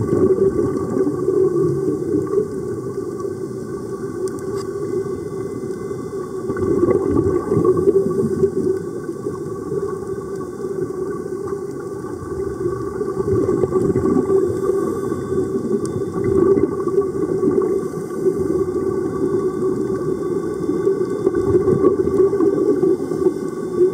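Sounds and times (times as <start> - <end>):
air bubbling underwater: 0.0 - 2.6, 6.5 - 8.7, 12.3 - 14.6
muffled underwater rumble and hiss: 0.0 - 23.9.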